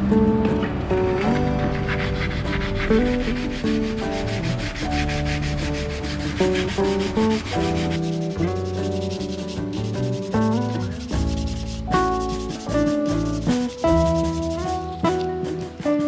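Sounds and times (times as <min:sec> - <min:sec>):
background music: 0:00.0 - 0:16.0
sandpaper rubbing on metal: 0:01.7 - 0:16.0.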